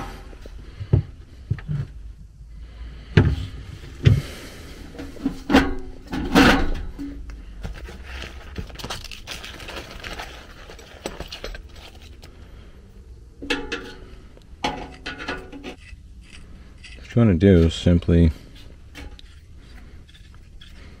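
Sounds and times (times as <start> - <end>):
rustling in tool bag: 7.5 - 12.4.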